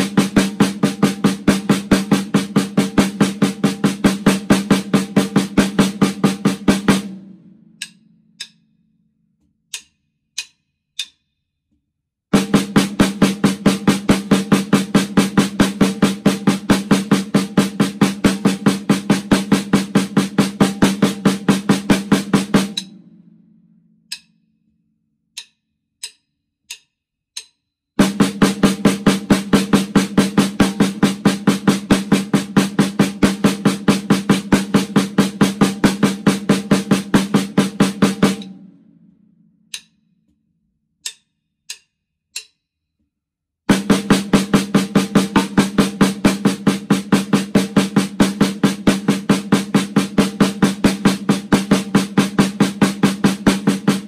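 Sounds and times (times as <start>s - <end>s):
snare drum fast single strokes: 0.0s - 8.6s, 12.3s - 23.0s, 28.0s - 38.6s, 43.7s - 54.0s
drum ringing out: 0.0s - 8.7s, 12.3s - 24.3s, 28.0s - 39.1s, 43.7s - 54.0s
sharp count-in clicks: 7.7s - 8.8s, 9.7s - 11.3s, 20.8s - 23.0s, 24.0s - 24.5s, 25.3s - 28.2s, 39.7s - 40.1s, 41.0s - 42.7s.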